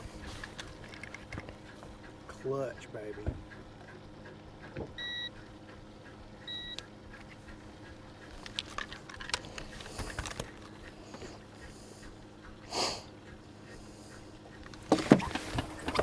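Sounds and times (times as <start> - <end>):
digital scale beeps: 5.0 - 5.3, 6.5 - 6.8.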